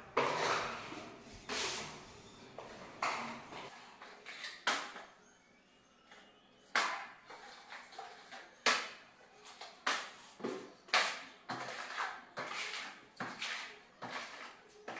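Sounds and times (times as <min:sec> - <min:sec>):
putty knife scraping wall: 0:00.2 - 0:01.9, 0:09.9 - 0:14.9.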